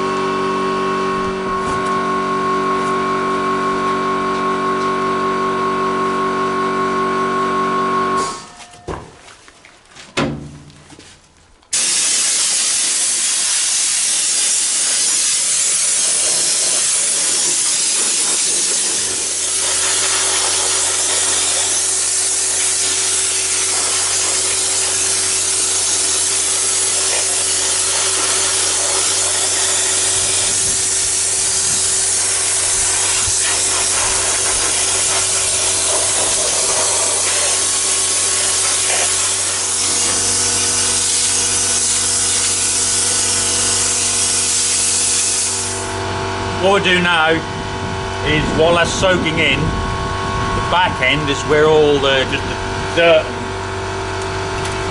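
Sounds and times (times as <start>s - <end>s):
pressure washer spraying hiss: 11.7s - 46.0s.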